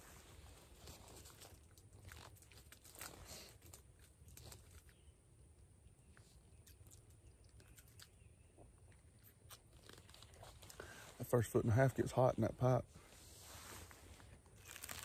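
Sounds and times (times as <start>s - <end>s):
crackers being chewed: 1.0s - 5.1s, 5.8s - 10.9s.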